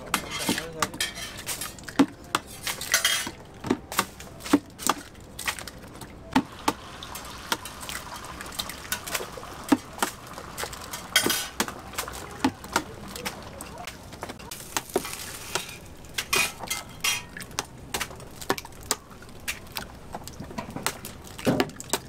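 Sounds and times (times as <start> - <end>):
eggs splashing into tub: 6.4 - 15.5.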